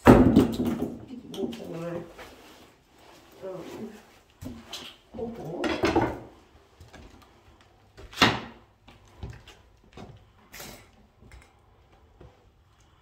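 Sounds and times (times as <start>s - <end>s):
footsteps scuffing on floor: 1.8s - 5.3s.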